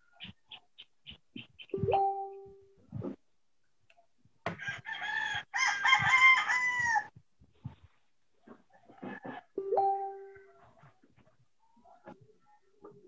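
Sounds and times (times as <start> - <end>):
rooster crowing: 4.5 - 7.1.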